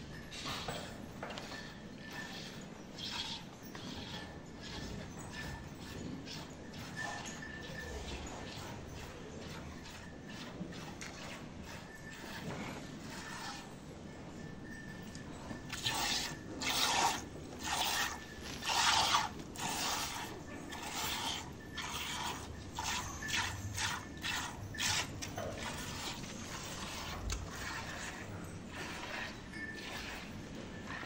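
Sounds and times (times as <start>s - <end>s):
milk squirting into metal pot: 15.7s - 30.2s.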